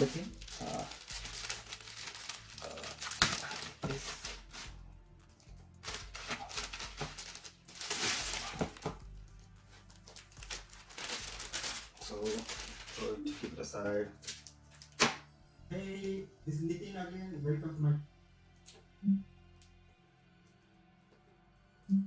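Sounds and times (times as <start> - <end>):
plastic wrap snapping: 0.0 - 4.7, 5.8 - 9.0, 9.8 - 13.5, 14.2 - 15.2
plastic wrap crinkling: 0.0 - 13.6.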